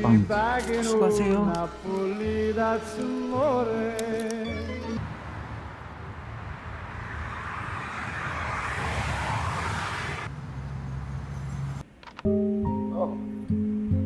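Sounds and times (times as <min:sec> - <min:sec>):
road traffic hum: 0:00.0 - 0:12.2
vehicle passing with tyre noise: 0:05.0 - 0:11.8.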